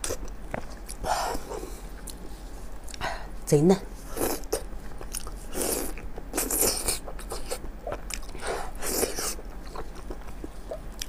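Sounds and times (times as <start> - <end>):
wet chewing and sucking: 4.2 - 11.0.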